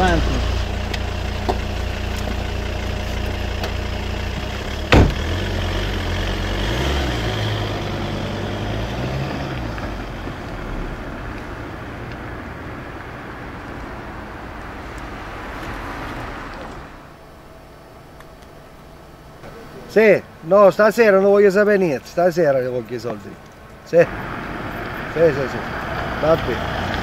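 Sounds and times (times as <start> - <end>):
car engine idling and revving: 0.0 - 19.7, 23.4 - 27.0
car door shutting: 4.8 - 5.4.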